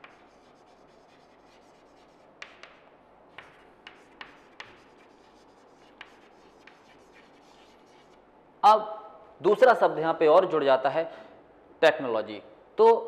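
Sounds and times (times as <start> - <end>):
chalk scratching on chalkboard: 0.0 - 8.2
chalk tapping on board: 0.0 - 8.2.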